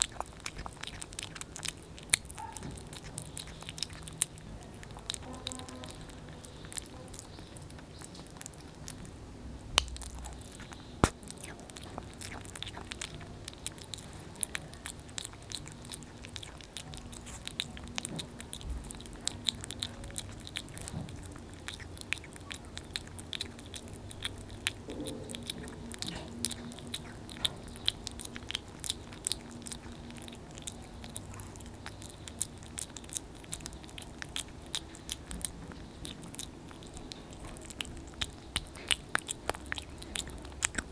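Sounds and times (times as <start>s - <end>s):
kitten chewing and lapping food: 0.0s - 40.9s.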